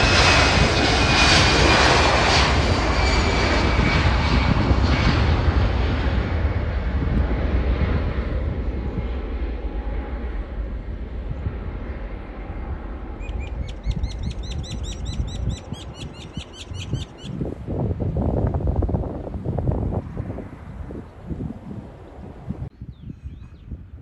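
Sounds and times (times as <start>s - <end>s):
jet engines at takeoff: 0.0s - 24.0s
wind on microphone: 0.0s - 24.0s
bird chirping: 13.2s - 17.4s.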